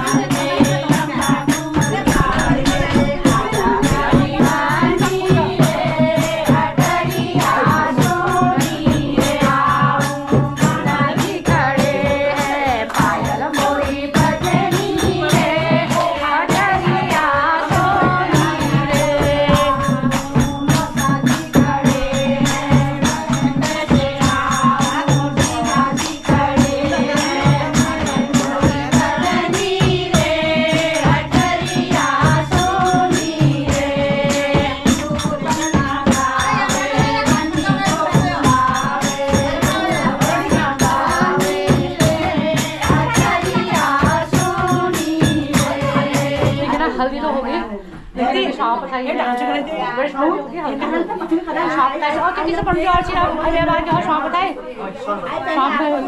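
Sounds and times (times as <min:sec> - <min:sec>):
drum beating: 0:00.0 - 0:48.0, 0:52.1 - 0:54.5
women singing in unison: 0:00.0 - 0:56.0.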